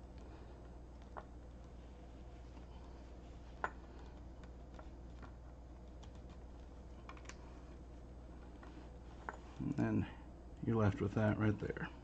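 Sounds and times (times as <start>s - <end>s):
faint clicks and taps: 0.0s - 2.7s, 3.4s - 9.7s
low steady hum: 0.0s - 12.0s.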